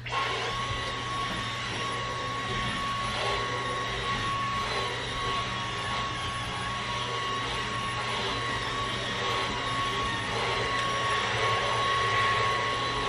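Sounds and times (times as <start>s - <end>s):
stick vacuum running: 0.0s - 13.0s.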